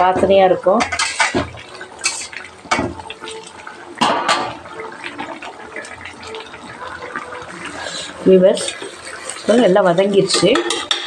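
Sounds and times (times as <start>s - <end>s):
gravy sloshing: 0.0s - 11.0s
spoon knocking against pan: 0.2s - 3.0s.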